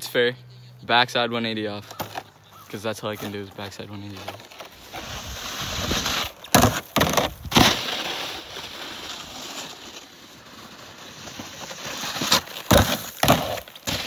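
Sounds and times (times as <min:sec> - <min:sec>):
snowboard hissing on snow: 0:04.9 - 0:06.3.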